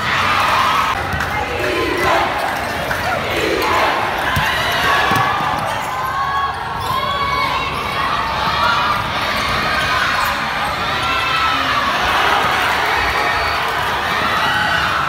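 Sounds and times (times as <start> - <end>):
crowd noise: 0.0 - 15.0
crowd shouts: 0.0 - 15.0
basketball bouncing on court: 4.3 - 5.9.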